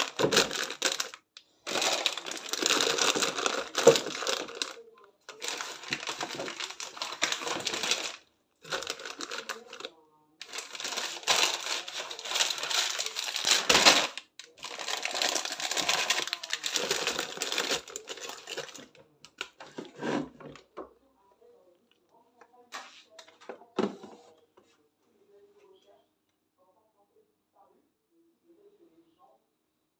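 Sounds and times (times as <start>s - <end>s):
plastic packets crinkling: 0.0s - 19.6s.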